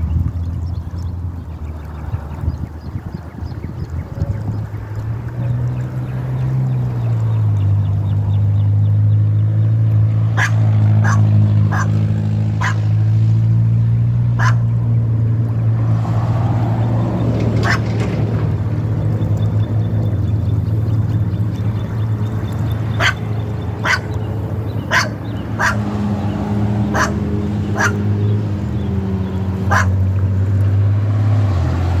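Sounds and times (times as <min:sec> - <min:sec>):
low motor hum: 0:00.0 - 0:32.0.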